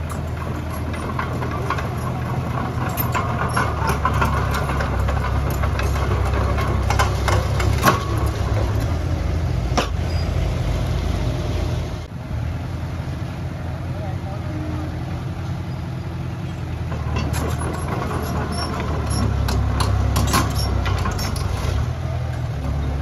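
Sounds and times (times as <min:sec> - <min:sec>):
metallic clanks and knocks: 0:00.0 - 0:10.3, 0:16.8 - 0:22.5
diesel engine running: 0:00.0 - 0:23.0.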